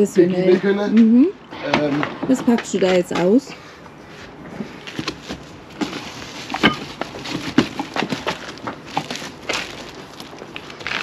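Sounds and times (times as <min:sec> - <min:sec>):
packaging rustling: 0:04.6 - 0:11.0.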